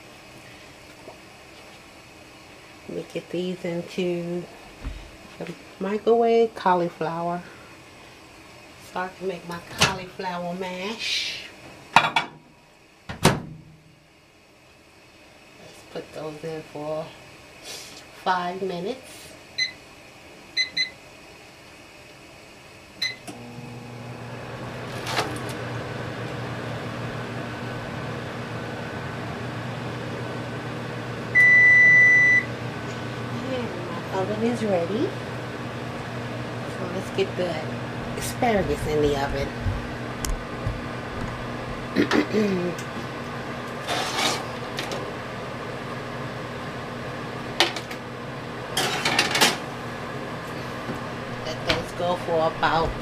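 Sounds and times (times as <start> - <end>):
microwave humming: 0.0 - 53.0
kitchenware clattering: 12.0 - 12.4, 48.8 - 49.6
long loud oven beep: 19.5 - 19.9, 20.5 - 21.1, 23.0 - 23.3, 31.3 - 32.6
microwave keypad beep: 19.6 - 19.8, 20.6 - 21.0, 23.0 - 23.2, 31.4 - 32.5.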